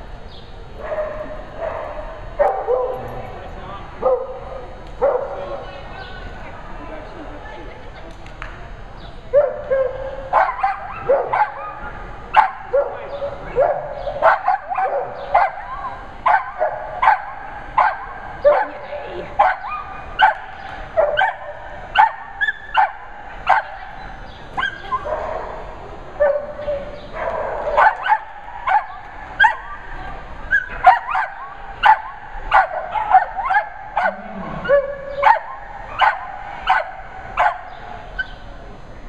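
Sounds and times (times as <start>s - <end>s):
dog barking: 0.8s - 3.1s, 4.0s - 5.6s, 9.4s - 23.9s, 26.2s - 29.8s, 30.5s - 38.3s.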